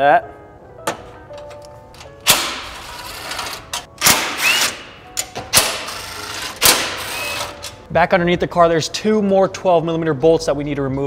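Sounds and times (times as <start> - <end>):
cordless drill unscrewing bolts: 2.0 - 7.8.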